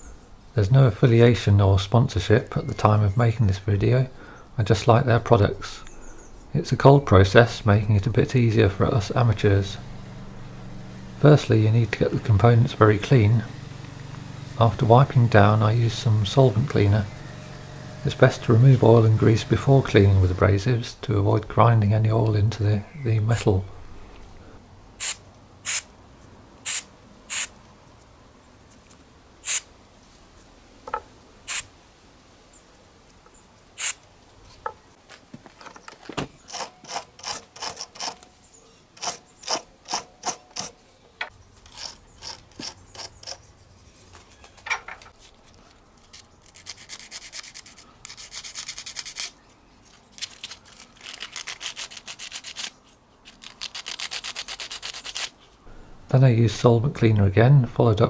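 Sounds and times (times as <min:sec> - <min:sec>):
aerosol spray hissing: 0:25.0 - 0:25.9, 0:26.7 - 0:27.5, 0:29.4 - 0:29.7, 0:31.5 - 0:31.7, 0:33.8 - 0:34.0
wire brush scrubbing metal: 0:46.1 - 0:49.4, 0:50.3 - 0:55.4.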